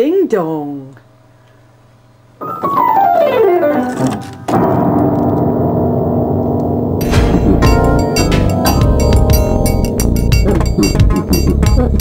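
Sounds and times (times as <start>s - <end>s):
piano notes: 2.4s - 12.0s
loud low piano chord: 4.4s - 11.5s.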